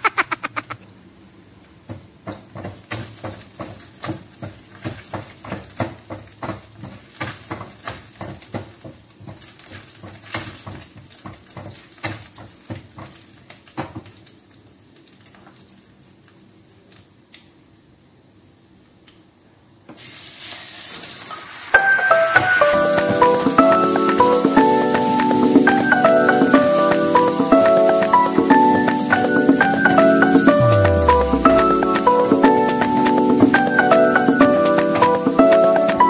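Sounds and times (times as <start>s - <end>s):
faint sizzle: 19.9s - 34.3s.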